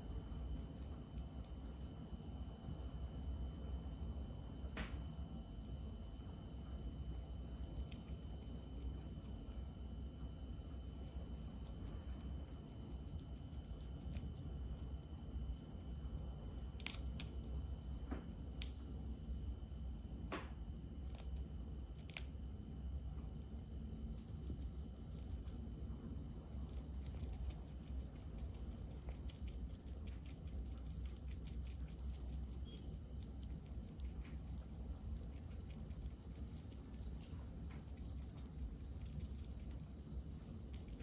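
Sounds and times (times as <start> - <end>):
steady low hum: 0.0 - 41.0
small animal chewing clicks: 4.3 - 9.7, 10.5 - 15.8, 16.6 - 17.7, 23.5 - 39.9, 40.7 - 41.0.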